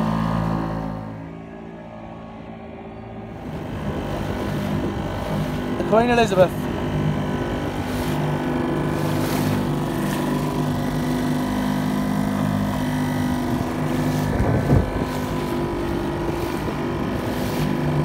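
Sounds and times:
motorboat engine running: 0.0s - 18.0s
wind on microphone: 3.2s - 5.9s, 12.8s - 18.0s.

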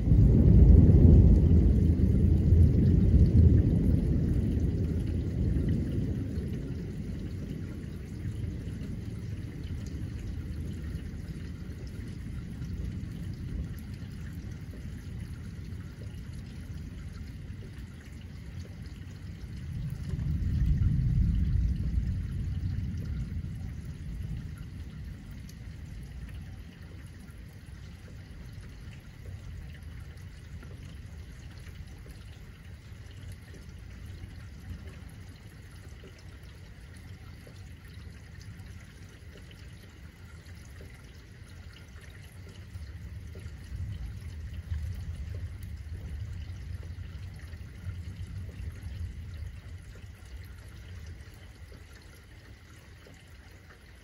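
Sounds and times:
low rolling thunder: 0.0s - 51.8s
rain falling and trickling: 0.0s - 54.0s.

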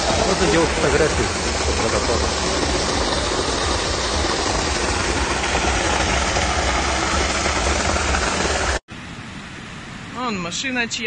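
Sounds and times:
storm water pouring onto pavement: 0.0s - 8.8s.

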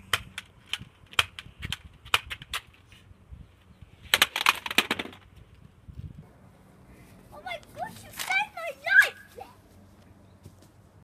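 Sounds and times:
toy blaster dense clatter: 0.0s - 2.8s, 4.0s - 5.3s.

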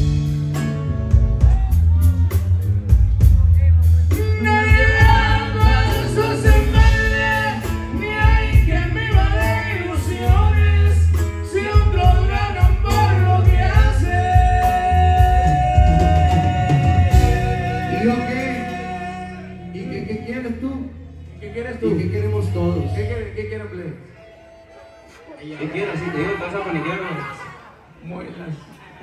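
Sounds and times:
heavy bass line: 0.0s - 24.2s
live band music: 0.0s - 26.8s
man singing: 4.1s - 20.9s.

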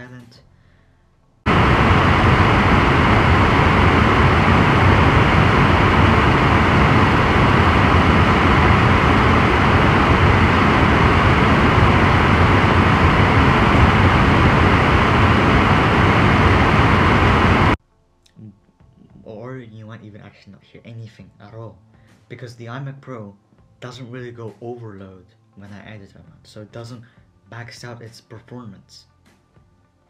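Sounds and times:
computer cooling fans rushing: 1.5s - 17.8s.

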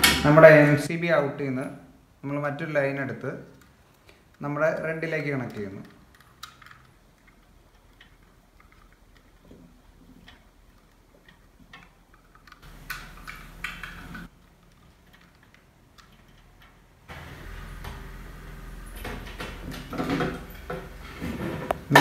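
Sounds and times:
low steady background noise: 0.0s - 22.0s
wire and plastic clicks and rustles: 3.5s - 17.4s.

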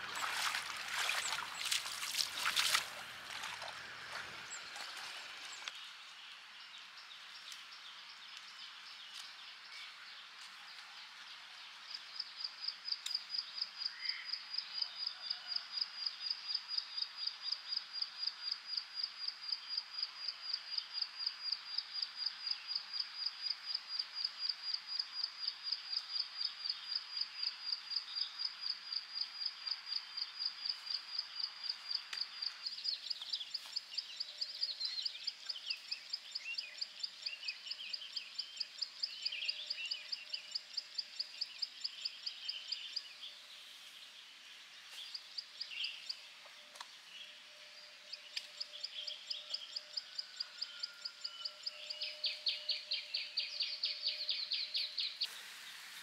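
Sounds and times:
steady background hiss: 52.2s - 56.0s.

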